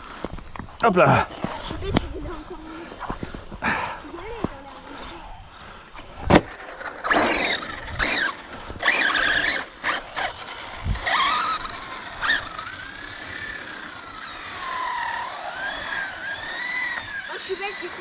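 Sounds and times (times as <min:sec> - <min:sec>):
electric motor whine: 0:06.6 - 0:18.0.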